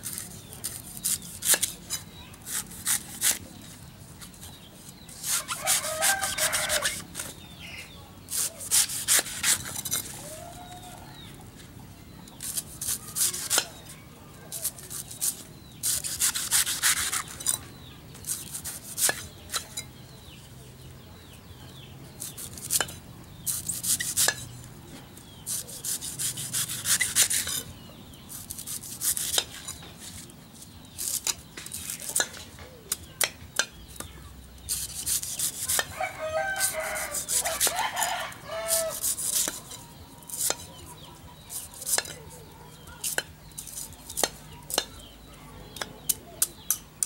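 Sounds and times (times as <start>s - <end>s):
knife scraping coconut husk: 0.0s - 7.6s, 8.2s - 11.3s, 12.3s - 20.0s, 22.2s - 45.0s
rooster crowing: 5.4s - 7.0s, 35.9s - 39.1s.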